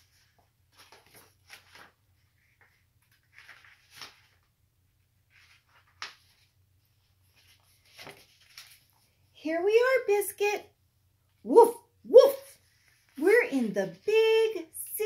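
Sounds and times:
paper book pages rustling: 0:00.0 - 0:09.3.

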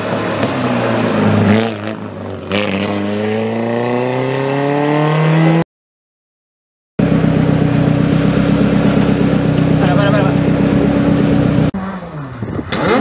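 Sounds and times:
rally car engine revving hard: 0:01.4 - 0:05.6, 0:09.8 - 0:13.0.

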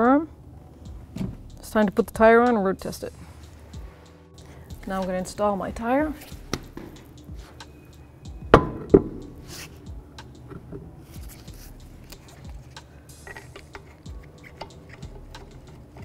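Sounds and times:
metallic clicks and scrapes of bolts: 0:12.0 - 0:16.0.

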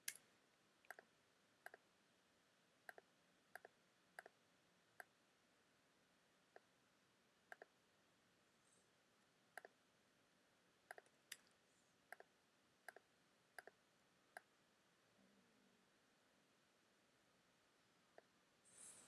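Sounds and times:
faint computer mouse clicks: 0:09.6 - 0:09.8.

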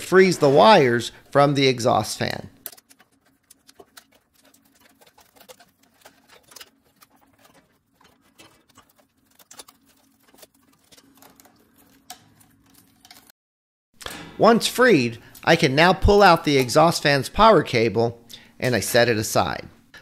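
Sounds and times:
plastic cable wrap clicking and rustling: 0:02.6 - 0:13.3.

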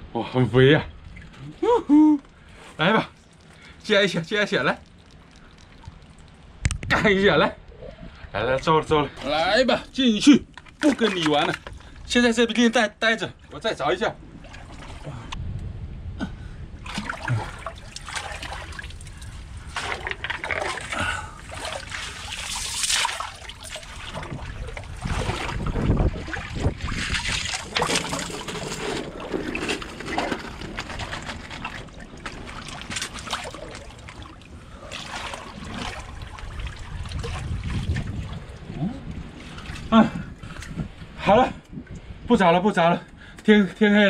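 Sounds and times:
wind rumble on microphone: 0:06.4 - 0:09.8, 0:14.1 - 0:22.4, 0:23.6 - 0:43.3
seawater splashing and sloshing: 0:09.1 - 0:12.6, 0:13.3 - 0:15.3, 0:16.8 - 0:41.0
hand net sweeping through water: 0:21.5 - 0:24.4.

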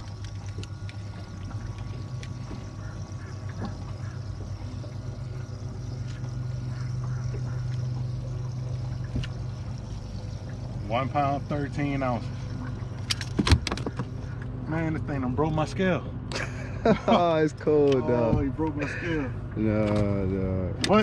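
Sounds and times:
water pouring and trickling: 0:00.0 - 0:15.8
pump humming: 0:00.0 - 0:21.0.

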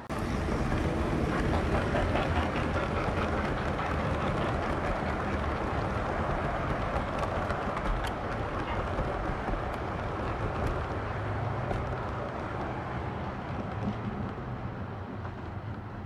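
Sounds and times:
model train rolling rumble: 0:00.0 - 0:16.0
sharp track clicks: 0:00.6 - 0:16.0.

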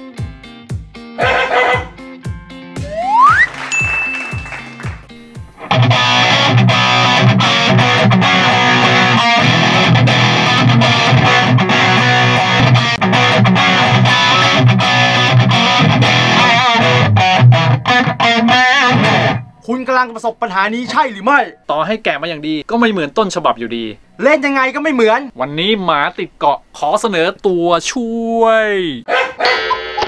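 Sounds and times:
distorted electric guitar riff: 0:02.8 - 0:19.6.

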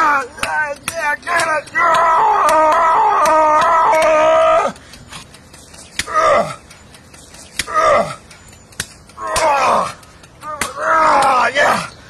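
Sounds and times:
man yelling strained: 0:00.0 - 0:04.8, 0:09.2 - 0:12.0.

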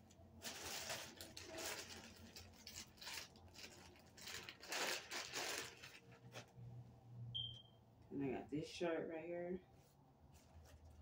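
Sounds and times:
plastic bag rustling: 0:00.0 - 0:06.7.

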